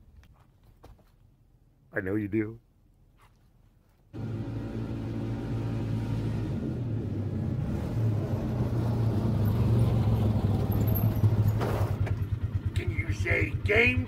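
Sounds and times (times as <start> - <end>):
utility vehicle engine approaching: 4.2 - 14.0.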